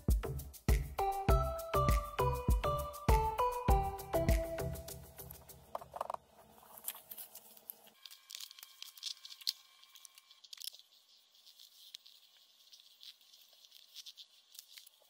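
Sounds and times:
background music: 0.0s - 5.7s
paper rustling and crinkling: 5.4s - 15.0s.

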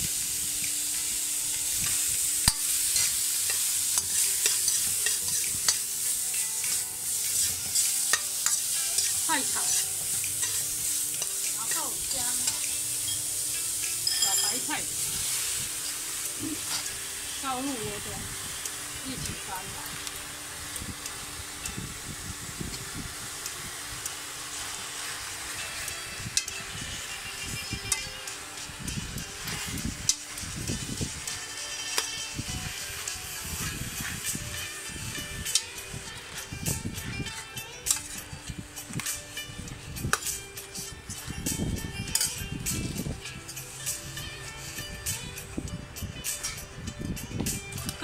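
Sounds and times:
mushrooms sizzling in hot oil: 0.0s - 48.0s
metal spatula scraping a wok: 0.9s - 17.4s, 24.5s - 45.4s
utensil clicking against pan: 1.8s - 12.9s.

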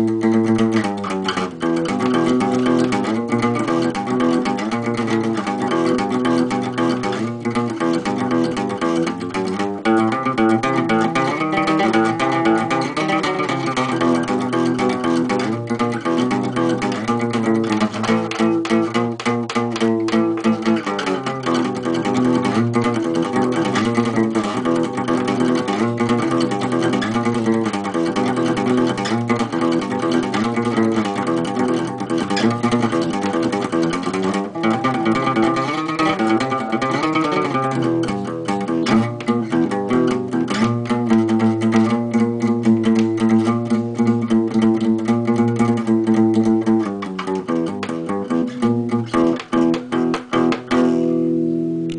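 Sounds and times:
guitar chords: 0.0s - 51.9s.

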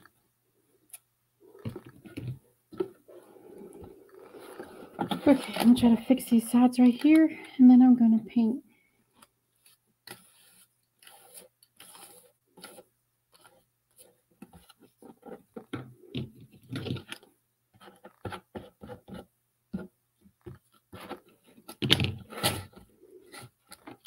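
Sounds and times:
small taps and scrapes: 1.6s - 3.0s, 9.2s - 21.9s, 22.8s - 24.0s.

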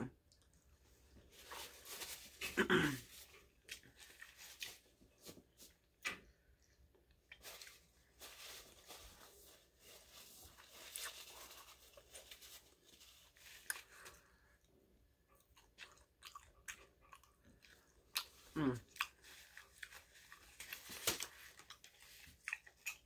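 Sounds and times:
faint chewing: 0.0s - 1.7s, 10.5s - 23.0s
wrapper paper rustling: 1.2s - 5.7s, 7.4s - 13.7s, 19.2s - 22.4s.

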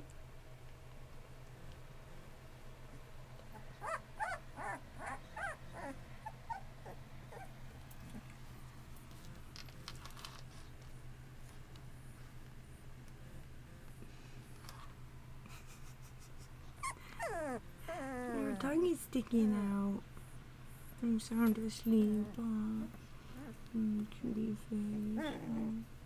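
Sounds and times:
steady low hum: 0.0s - 26.0s
puppy whimpering: 3.5s - 8.2s, 16.8s - 18.8s, 23.3s - 23.7s, 25.1s - 25.8s
soft clicks and rustles: 7.7s - 13.3s.

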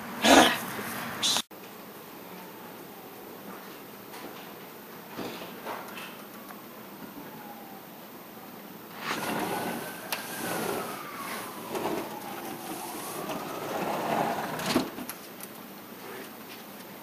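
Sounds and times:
vehicle passing: 0.0s - 1.4s, 9.1s - 14.7s.

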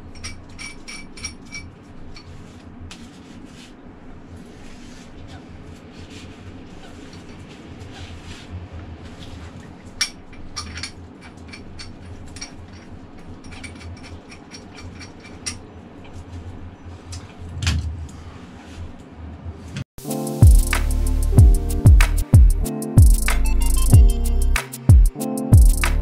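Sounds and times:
low hum: 16.9s - 19.8s.

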